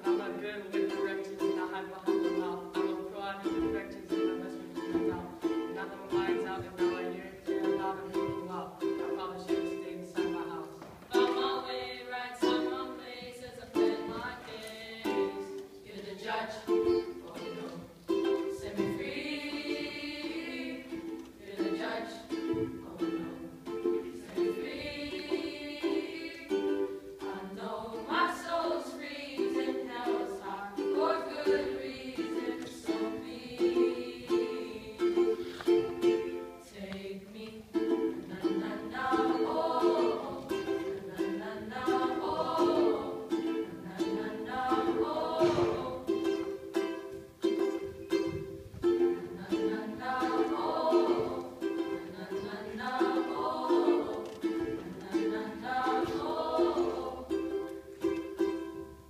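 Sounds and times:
ukulele strumming: 0.0 - 59.0
boys singing together: 11.1 - 46.6, 49.2 - 57.8.

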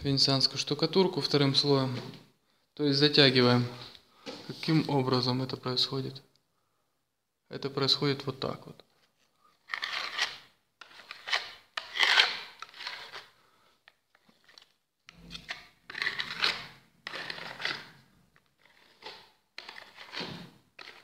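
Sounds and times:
trowel scraping plaster on wall: 9.6 - 13.4, 15.1 - 21.0.

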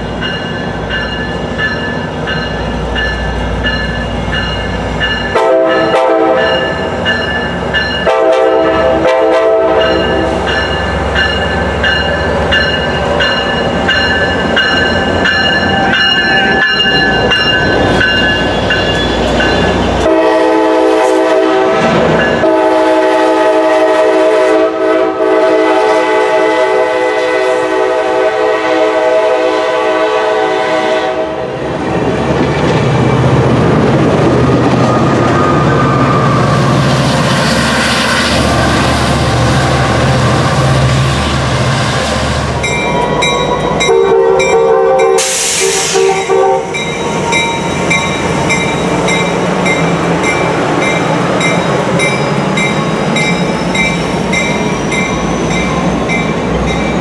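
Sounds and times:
locomotive engine rumbling: 0.0 - 23.8, 27.9 - 57.0
locomotive air horn blasts: 5.3 - 6.8, 8.0 - 10.5, 20.0 - 31.5, 43.8 - 46.8
train wheels clattering on rails: 9.8 - 20.1, 42.6 - 57.0.

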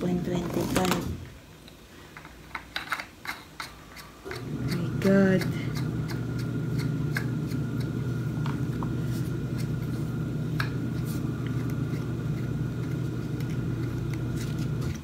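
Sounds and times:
washing machine motor humming: 4.2 - 15.0.

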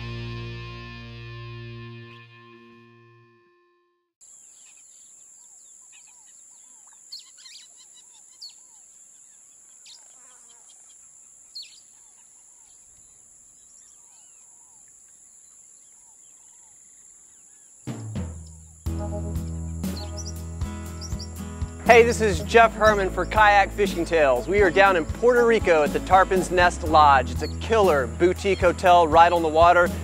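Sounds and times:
birds chirping and calling: 4.3 - 30.0
loud music: 18.9 - 30.0.

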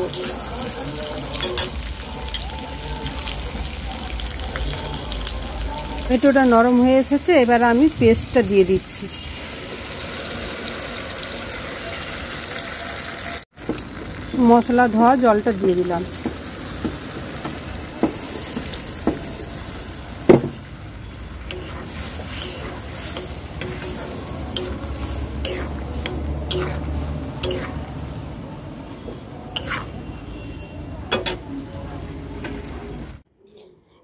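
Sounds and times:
sauce sizzling: 0.0 - 28.8, 29.5 - 33.2
spatula scraping and clinking pan: 21.5 - 27.9, 29.6 - 29.9.

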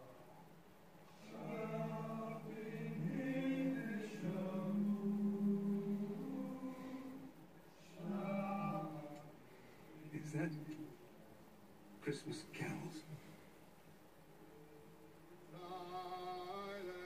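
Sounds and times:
men singing a cappella carol: 1.2 - 9.4, 15.5 - 17.0.

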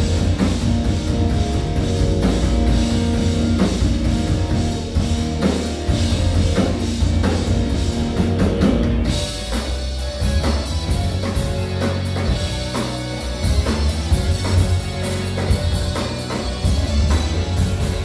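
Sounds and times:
bass guitar: 0.0 - 18.0
drum kit beat: 0.0 - 18.0
electric guitar: 0.0 - 18.0
keyboard: 0.0 - 18.0.

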